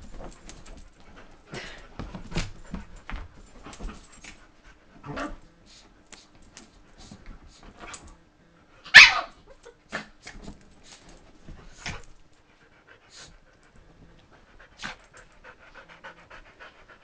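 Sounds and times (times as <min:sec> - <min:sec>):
dogs scuffling: 0:00.0 - 0:04.4
dog barking: 0:08.9 - 0:09.3
dogs panting: 0:14.3 - 0:17.0.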